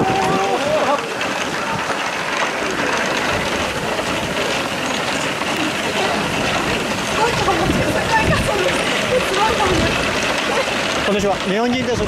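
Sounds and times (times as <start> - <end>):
strong wind blowing: 0.0 - 12.0.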